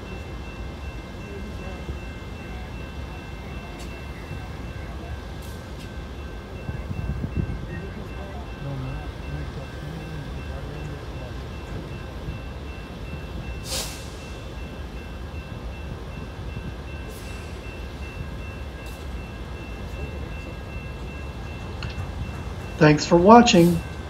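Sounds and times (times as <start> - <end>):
diesel locomotive idling: 0.0 - 24.0
dump trucks working: 0.0 - 24.0
sharp air hiss: 13.6 - 14.3.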